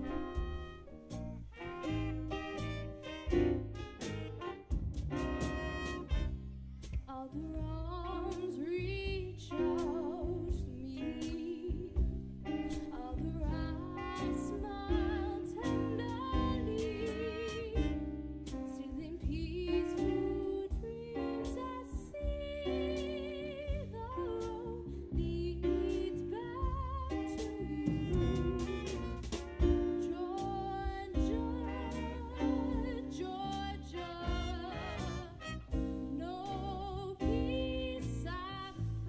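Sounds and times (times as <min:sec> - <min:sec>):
woman singing with vibrato: 0:00.0 - 0:00.6, 0:07.1 - 0:18.0, 0:18.7 - 0:29.1, 0:30.0 - 0:39.0
bass: 0:00.0 - 0:39.0
drum kit: 0:00.0 - 0:39.0.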